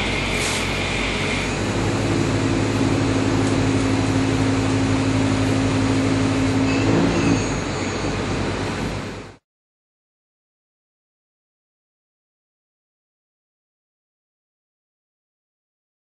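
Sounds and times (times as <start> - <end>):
coolant spray hiss: 0.0 - 1.7
machine running hum: 0.0 - 9.4.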